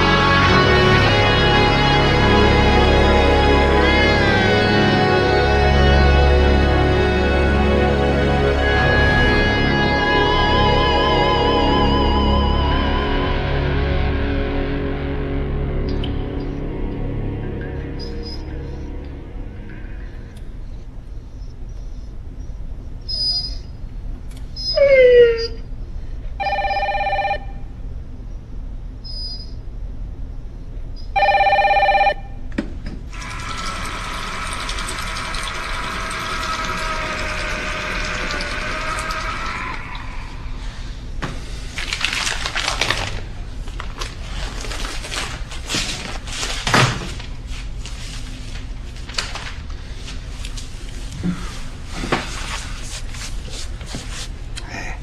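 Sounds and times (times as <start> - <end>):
dog whining: 24.6 - 25.7
telephone ringing: 26.4 - 27.6, 31.2 - 32.4.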